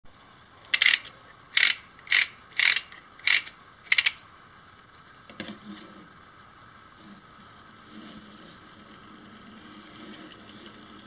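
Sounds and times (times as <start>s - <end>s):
wind-up gear clicking: 0.6s - 4.2s.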